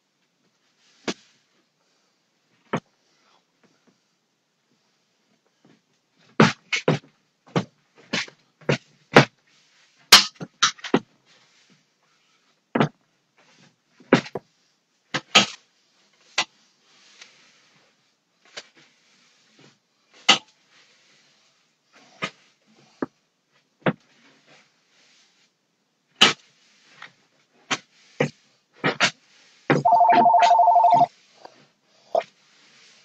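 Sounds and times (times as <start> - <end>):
faint brushing: 15.9 - 23.0, 24.1 - 25.6, 26.4 - 33.0.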